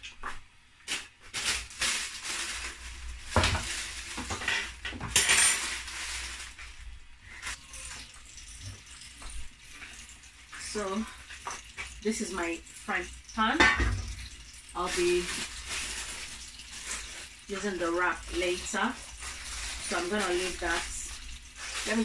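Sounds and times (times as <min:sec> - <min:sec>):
pots and pans clattering: 0:03.3 - 0:06.2, 0:13.4 - 0:14.4.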